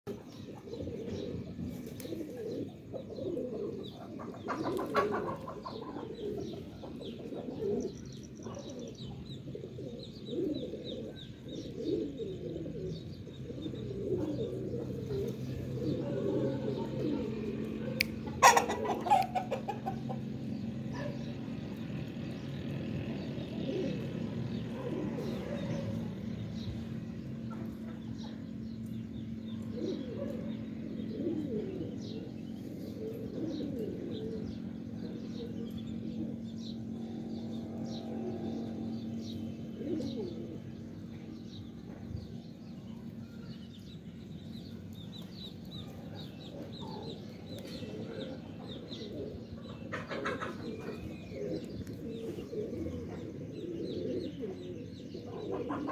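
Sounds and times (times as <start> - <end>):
pigeons cooing: 0.1 - 55.9
chickens clucking: 0.2 - 7.9, 14.0 - 21.6, 27.3 - 34.9, 45.2 - 55.9.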